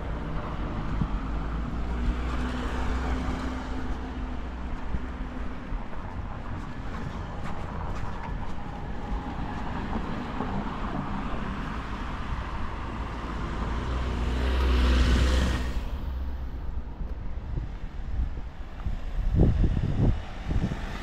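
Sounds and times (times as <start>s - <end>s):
street traffic noise: 0.0s - 21.0s
vehicle passing by: 6.4s - 21.0s.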